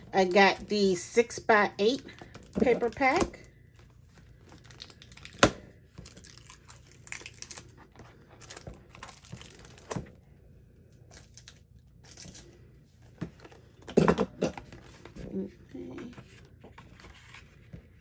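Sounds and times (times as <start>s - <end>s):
plastic wrapping crinkling and tearing: 4.0s - 10.1s.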